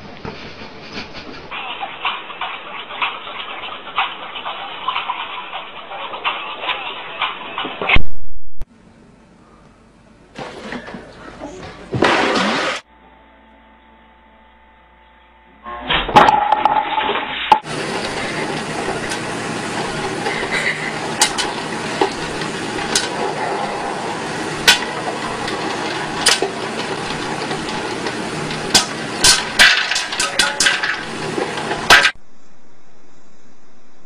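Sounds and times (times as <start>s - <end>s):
kernels popping: 16.2s - 32.2s
popcorn popper sizzling: 16.2s - 32.2s.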